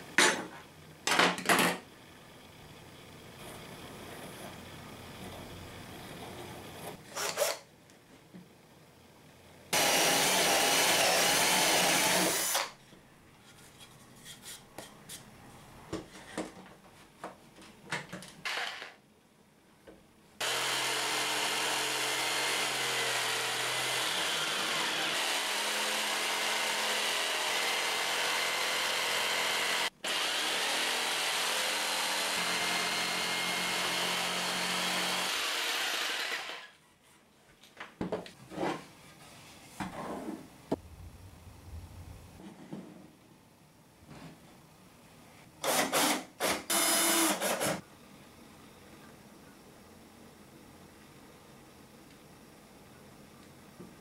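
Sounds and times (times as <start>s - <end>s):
jigsaw cutting wood: 7.1s - 7.6s, 9.8s - 12.7s, 20.4s - 36.8s, 45.6s - 47.8s
power tool running: 9.7s - 12.8s, 20.4s - 36.8s, 45.6s - 47.8s.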